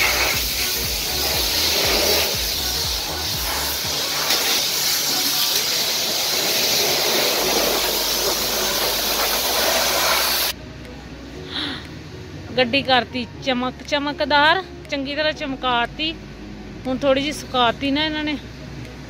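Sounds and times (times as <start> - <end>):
pressure washer spraying water: 0.0 - 10.6.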